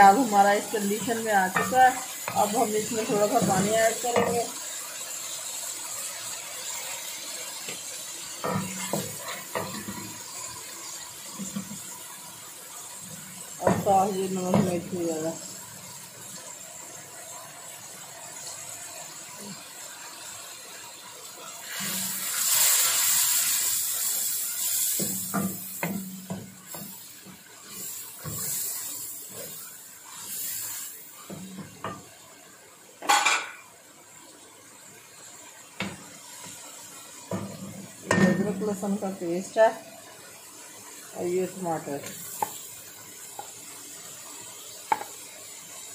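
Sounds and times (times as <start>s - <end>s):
spoon stirring in pan: 0.0s - 4.8s, 7.6s - 10.7s, 42.1s - 43.7s, 44.5s - 45.3s
onions sizzling in pan: 0.0s - 45.9s
wooden spoon knocking on pan: 1.0s - 4.5s, 13.6s - 14.9s, 25.0s - 27.4s, 44.9s - 45.2s.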